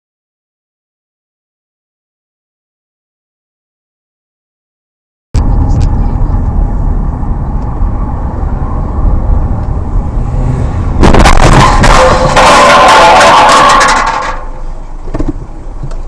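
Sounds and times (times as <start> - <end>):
car engine and road rumble: 5.4 - 16.0
loud harsh noise: 11.0 - 14.6.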